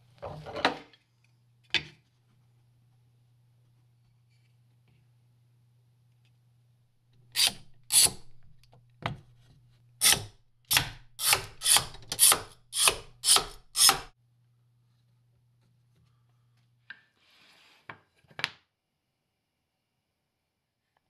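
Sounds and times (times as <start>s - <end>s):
hand tool scraping: 7.4s - 8.4s, 10.0s - 14.1s.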